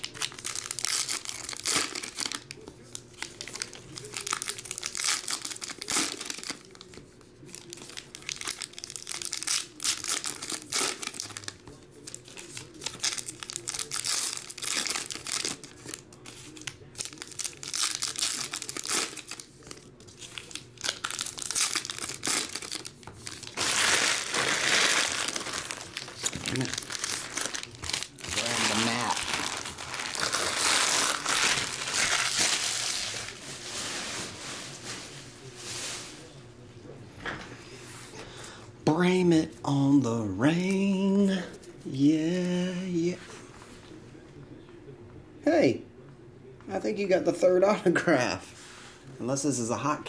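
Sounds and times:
foil wrappers crinkling and tearing: 0.0 - 36.3.

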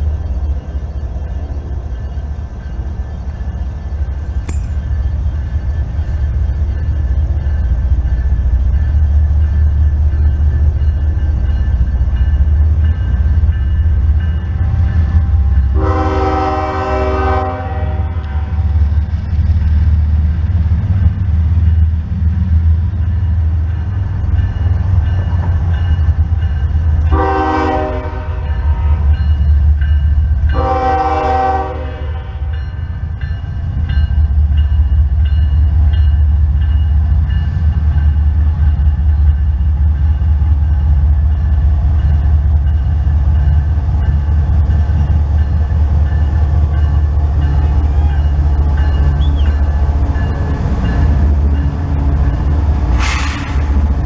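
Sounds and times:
low rumble of train: 0.0 - 54.0
locomotive air horn blasts: 15.8 - 18.5, 27.1 - 29.1, 30.6 - 32.4.

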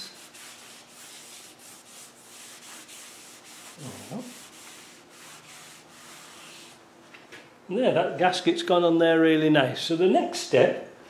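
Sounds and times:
rag rubbing on metal: 0.0 - 6.8.

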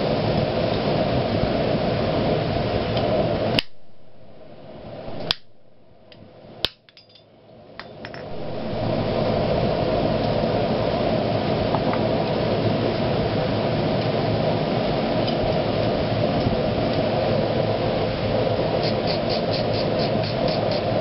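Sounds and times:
steady rushing noise: 0.0 - 6.7, 7.8 - 21.0
hammer blows on hot iron: 3.0 - 6.8.

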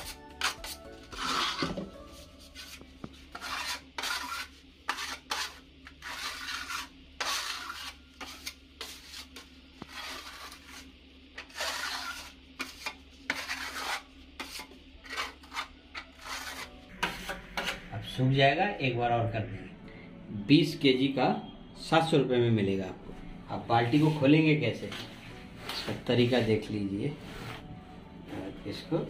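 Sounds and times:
putty knife scraping plaster: 0.0 - 1.9, 2.6 - 17.8.

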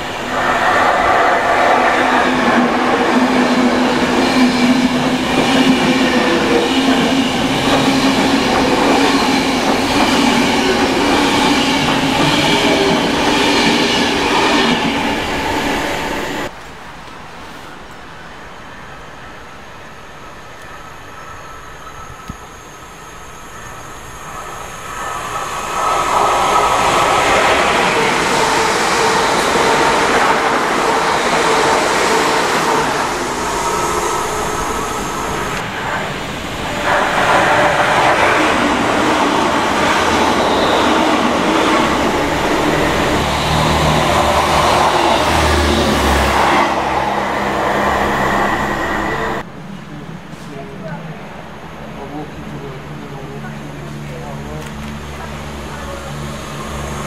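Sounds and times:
passenger train rumbling: 0.0 - 57.0
low drone: 21.9 - 57.0.

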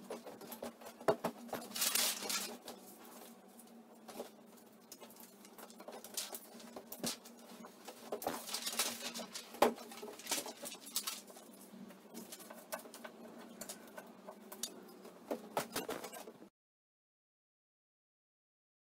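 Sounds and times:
paper sheets rustling and crinkling: 0.1 - 13.9.

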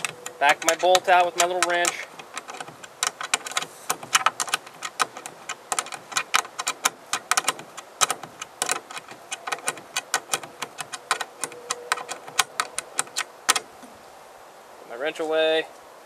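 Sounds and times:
wrench clicking on bolt: 0.0 - 13.7.

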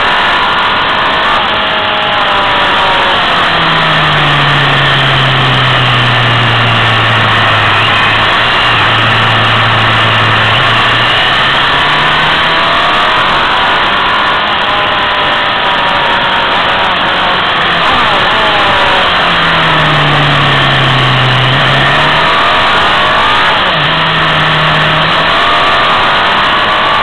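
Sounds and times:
motorcycle engine revving: 0.0 - 27.0.

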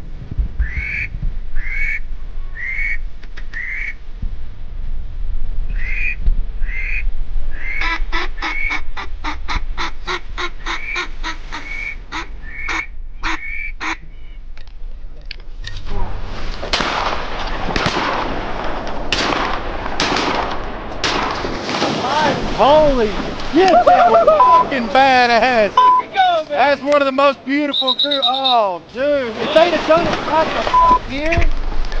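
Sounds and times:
duck quacking: 5.8 - 7.0, 7.6 - 14.0
loud rush of noise: 15.9 - 27.7, 28.7 - 32.0.

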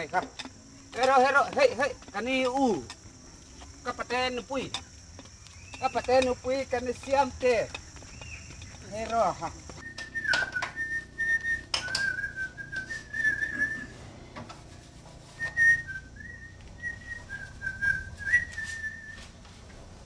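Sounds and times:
person whistling a tune: 15.4 - 19.3.

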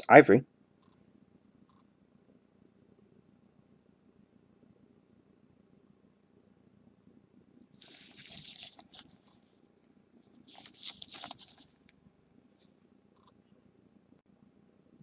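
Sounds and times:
crinkling of gloved hands: 7.8 - 9.5, 10.3 - 11.9.

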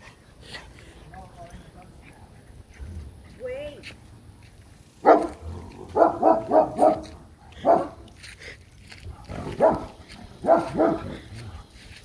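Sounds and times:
dog barking: 5.0 - 8.0, 9.2 - 11.2.

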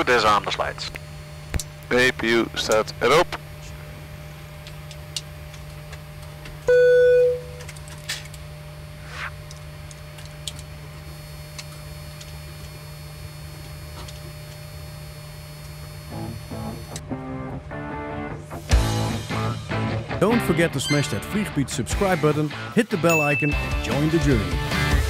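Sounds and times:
guitar music: 16.1 - 25.0.

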